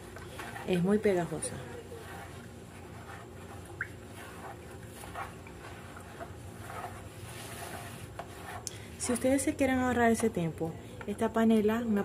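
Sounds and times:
water sloshing: 0:00.0 - 0:08.6
spoon scraping in plastic tub: 0:00.0 - 0:10.5
low steady hum: 0:00.0 - 0:12.0.

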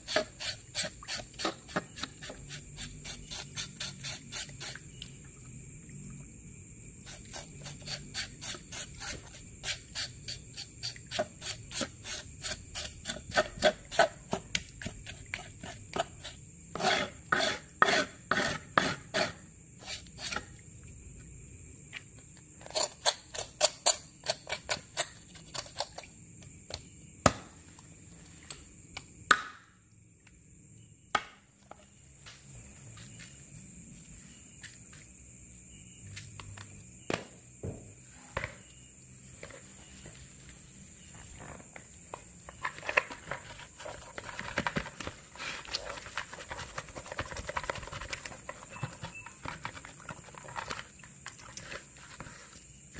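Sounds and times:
knocks on cutting board: 0:37.1 - 0:37.9.

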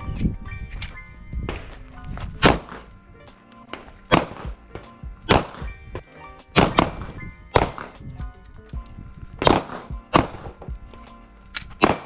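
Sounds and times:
background music: 0:00.0 - 0:12.0
pistol shots: 0:02.4 - 0:02.9, 0:03.7 - 0:05.8, 0:06.5 - 0:08.0, 0:09.4 - 0:10.6, 0:11.6 - 0:12.0.

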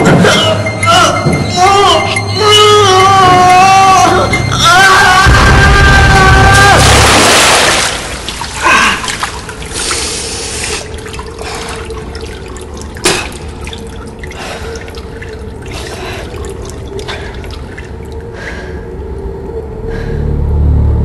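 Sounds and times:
water dripping in tunnel: 0:06.2 - 0:20.2.

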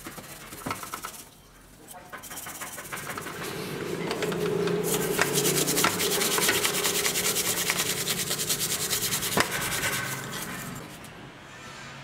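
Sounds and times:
steel wool scrubbing metal: 0:01.7 - 0:11.3.

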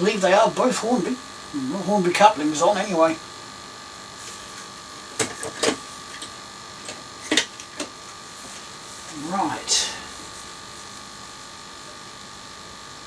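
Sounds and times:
steady electrical hum: 0:00.0 - 0:13.0.

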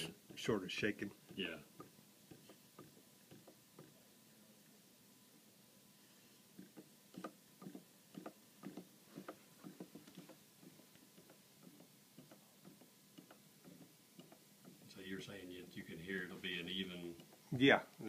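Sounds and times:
pendulum clock ticking: 0:01.2 - 0:04.0, 0:06.6 - 0:15.0.

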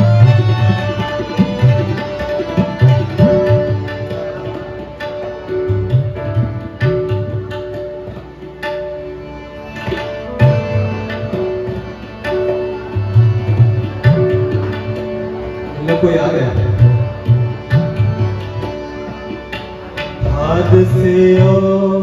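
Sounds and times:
harmonium melody: 0:00.0 - 0:22.0
tabla rhythm: 0:00.0 - 0:22.0.

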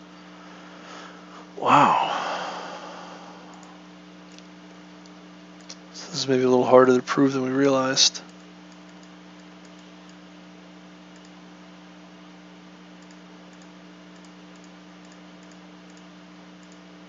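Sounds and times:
low electrical hum: 0:00.0 - 0:17.0
computer clicks: 0:03.5 - 0:05.8, 0:08.3 - 0:10.2, 0:11.1 - 0:11.4, 0:13.0 - 0:16.9.

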